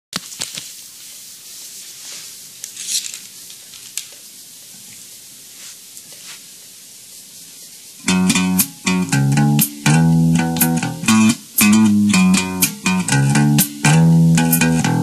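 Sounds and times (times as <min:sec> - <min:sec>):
steady hiss with crackles: 0:00.1 - 0:15.0
bass guitar: 0:08.0 - 0:15.0
plucked guitar music: 0:08.0 - 0:15.0.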